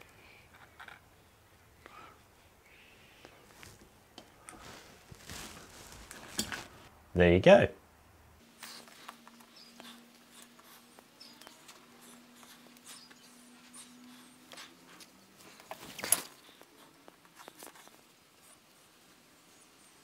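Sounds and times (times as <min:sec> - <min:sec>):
faint steady hum: 0:00.0 - 0:20.0
handling clicks and rustles: 0:03.4 - 0:06.9, 0:14.4 - 0:18.1.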